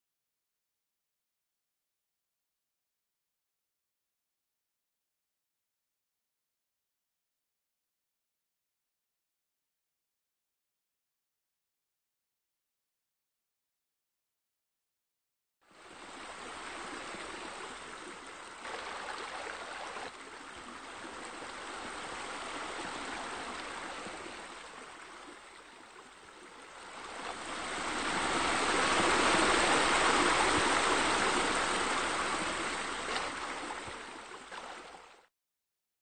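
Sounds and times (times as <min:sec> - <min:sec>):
water splashing over stones: 0:18.5 - 0:21.4, 0:28.4 - 0:35.2.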